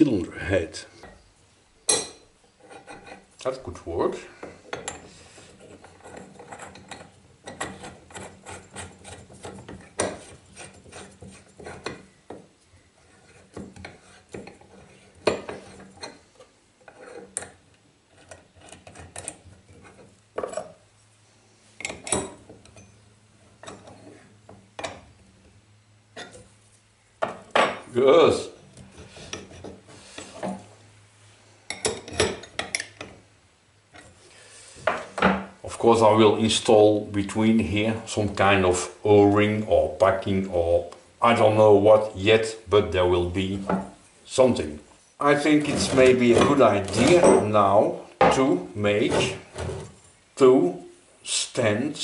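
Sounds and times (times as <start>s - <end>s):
steel parts clinking and scraping: 4.4s - 12.0s, 45.3s - 47.6s.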